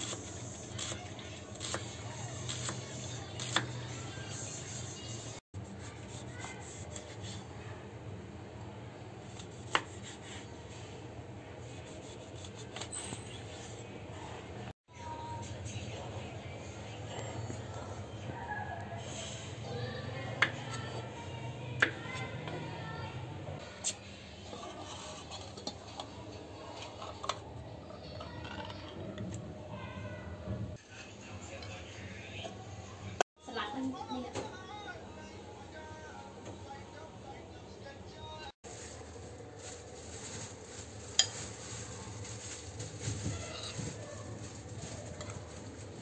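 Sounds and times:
knife slicing limes on board: 9.4s - 10.4s.

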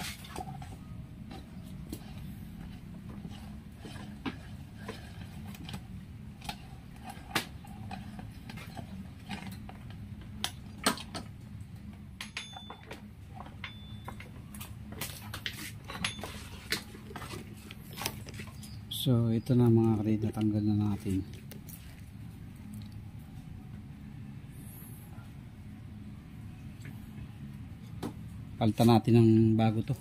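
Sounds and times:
metal tools clinking on metal: 12.2s - 14.3s, 15.8s - 17.4s.

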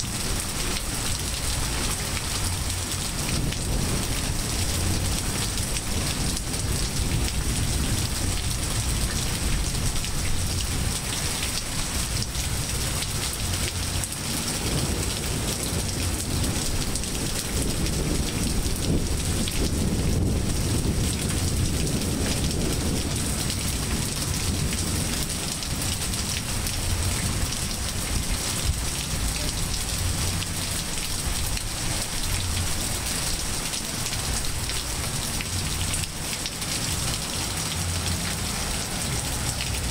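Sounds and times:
rain falling on trees and pavement: 0.0s - 39.9s
thunder rumble: 14.6s - 32.9s.

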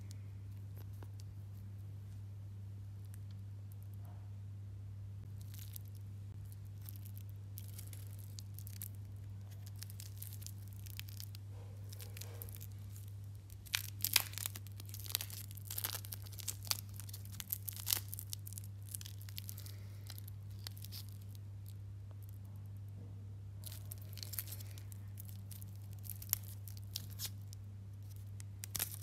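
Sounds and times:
steady low hum: 0.0s - 29.0s
plastic film crinkling: 5.3s - 22.3s, 23.6s - 29.0s.

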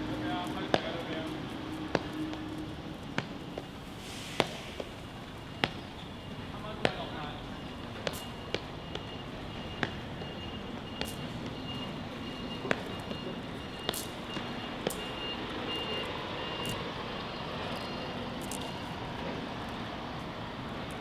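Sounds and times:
city street traffic: 0.0s - 21.0s
high electronic beep: 7.6s - 18.8s.

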